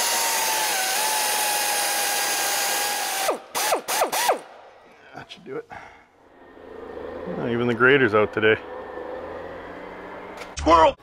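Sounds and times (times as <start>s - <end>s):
air ratchet whine and hiss: 0.0s - 4.4s.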